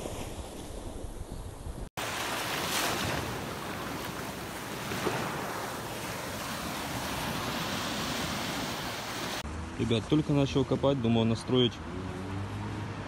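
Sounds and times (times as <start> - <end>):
small waves washing over sand: 2.0 - 9.4.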